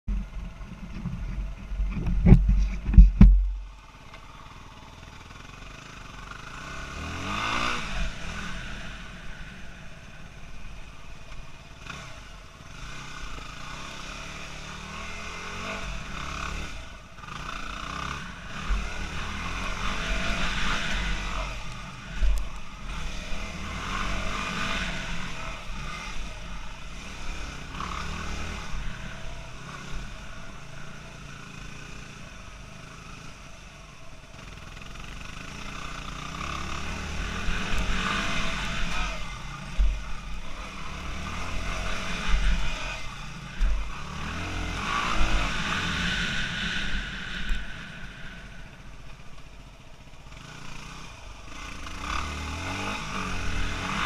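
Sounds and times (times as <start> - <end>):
heavy low thumps: 1.1 - 3.7
motocross bike engine revving: 4.2 - 10.9, 11.5 - 54.0.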